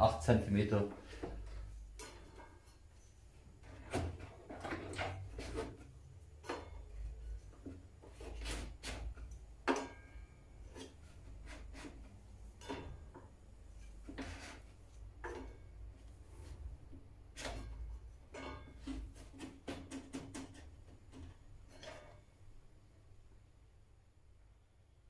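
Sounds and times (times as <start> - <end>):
fence sliding on saw table: 13.8 - 14.7.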